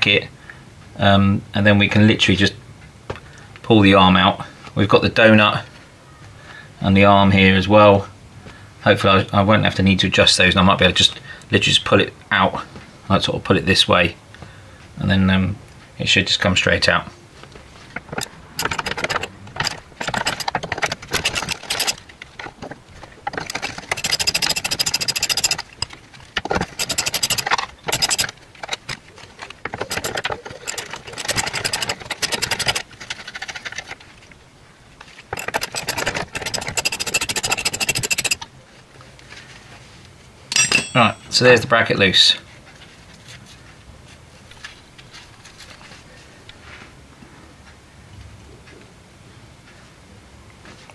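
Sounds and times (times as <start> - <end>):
socket ratchet clicking: 18.1 - 22.0, 23.3 - 28.9, 29.7 - 33.8, 35.4 - 38.4.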